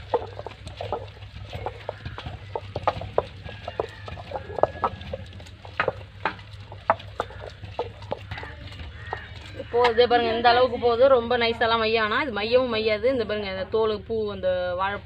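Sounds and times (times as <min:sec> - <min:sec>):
stone knocking and scraping stone: 0:00.1 - 0:09.3.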